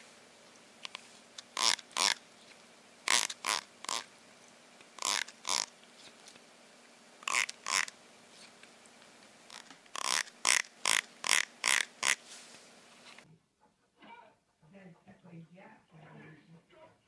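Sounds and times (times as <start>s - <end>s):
comb teeth strummed: 9.5s - 12.2s.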